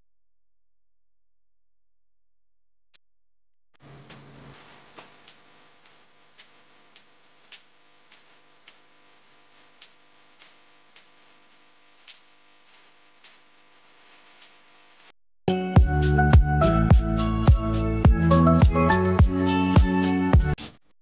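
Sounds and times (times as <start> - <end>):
light sharp ticks: 5.2 - 8.9, 9.8 - 11.2, 12.0 - 12.3, 13.2 - 13.4.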